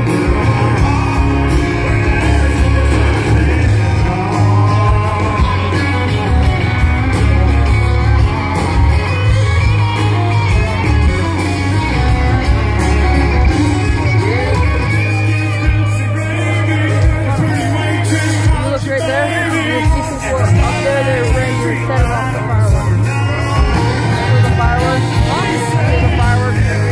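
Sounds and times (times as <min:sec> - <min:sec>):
person singing: 0:00.0 - 0:07.3, 0:12.4 - 0:26.9
boomy bass: 0:00.0 - 0:26.9
live country band playing: 0:00.0 - 0:26.9.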